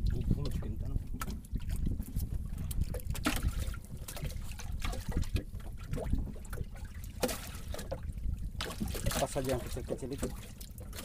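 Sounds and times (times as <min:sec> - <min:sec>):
small splashes: 0:02.7 - 0:11.0.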